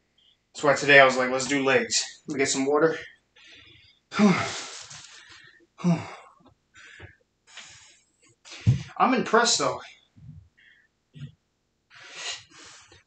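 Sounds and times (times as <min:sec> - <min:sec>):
man sighing: 0:04.1 - 0:04.8, 0:05.8 - 0:06.2.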